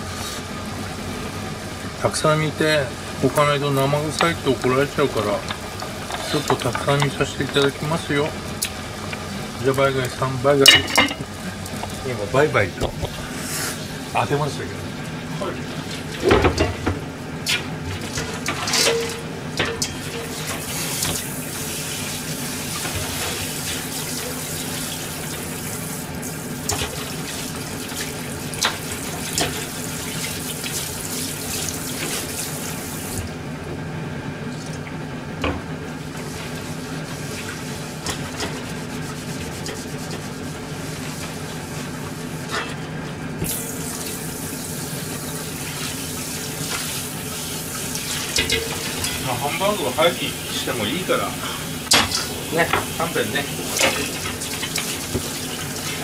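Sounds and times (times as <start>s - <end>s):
frying pan being scrubbed: 4.3s - 8.4s, 13.0s - 14.2s, 17.5s - 33.0s, 35.9s - 42.9s, 43.5s - 56.0s
pan knocking against sink: 10.7s - 11.3s, 16.2s - 17.0s.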